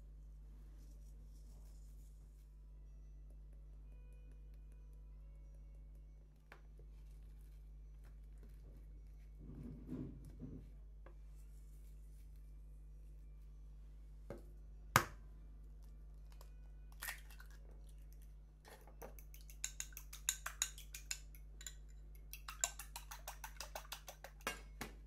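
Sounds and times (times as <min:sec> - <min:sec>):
egg beaten in glass bowl: 0:18.7 - 0:25.0.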